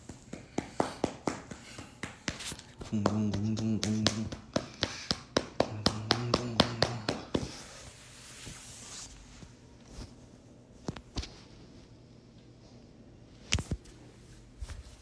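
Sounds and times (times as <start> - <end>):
hand patting dog: 0.0 - 7.6
low steady hum: 0.0 - 15.0.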